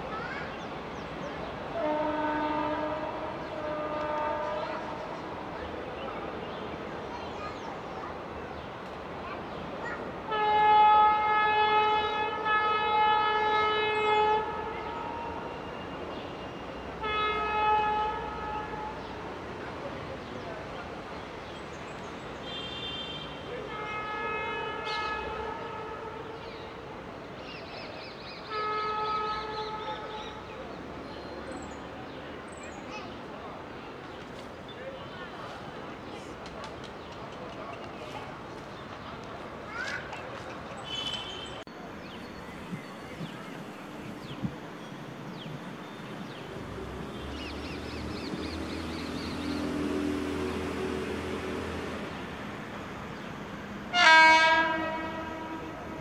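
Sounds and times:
steady outdoor hiss: 0.0s - 56.0s
train horn: 1.8s - 5.4s, 10.3s - 16.0s, 16.9s - 19.3s, 22.4s - 26.7s, 28.5s - 30.5s, 53.9s - 56.0s
birds chirping: 37.0s - 51.6s.

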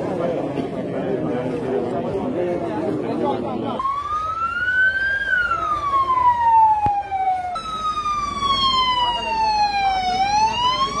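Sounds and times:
ambulance siren wailing: 3.8s - 11.0s.

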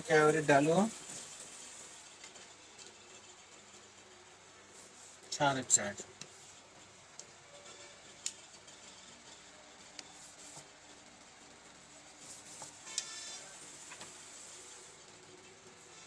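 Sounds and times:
chalk scratching on fabric: 10.0s - 10.7s, 12.1s - 15.0s.

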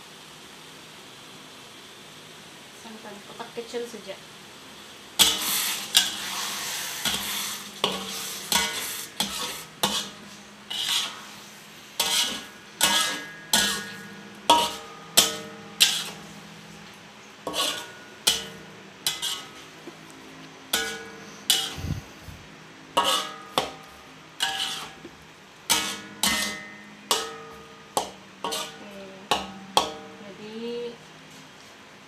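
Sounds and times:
utensil scraping metal pot: 5.2s - 19.9s, 20.7s - 22.4s, 23.0s - 30.1s.

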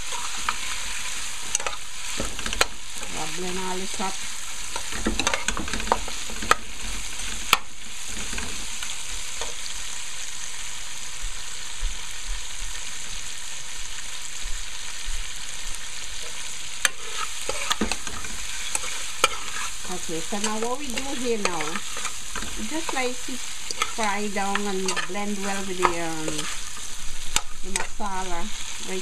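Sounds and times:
metal spoon scraping a pot: 0.0s - 3.3s, 4.7s - 8.7s, 16.8s - 28.0s
meat sizzling in a pot: 0.0s - 29.0s.

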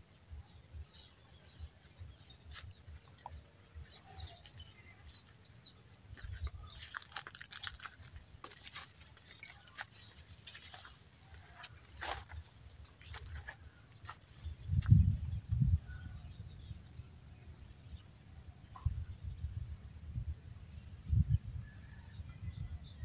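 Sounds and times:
birds chirping: 0.0s - 23.0s
crunching clicks: 6.2s - 12.4s.

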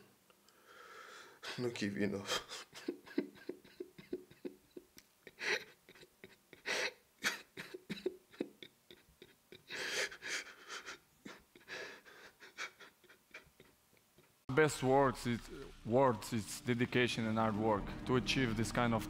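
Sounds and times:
man breathing hard in gasps: 0.5s - 1.4s.

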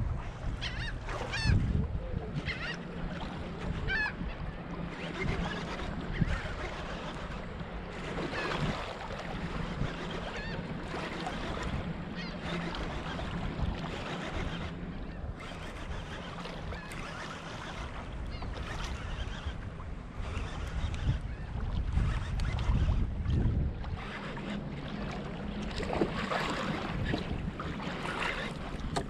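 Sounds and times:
seabirds calling: 0.0s - 29.0s
water sloshing against kayak hull: 0.0s - 29.0s
wind on microphone: 0.0s - 29.0s.

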